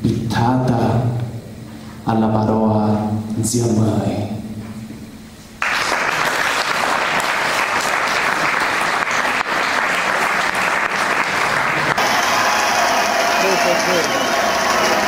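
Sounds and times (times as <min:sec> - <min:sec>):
audience applause: 0:05.6 - 0:15.0.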